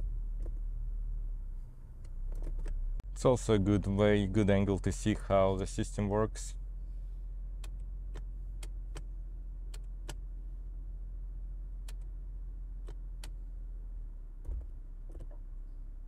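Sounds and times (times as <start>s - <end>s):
car engine idling: 0.0s - 16.0s
gear shifter clicks: 2.0s - 2.8s, 7.6s - 9.1s, 9.7s - 10.2s, 11.8s - 12.1s, 12.8s - 13.4s.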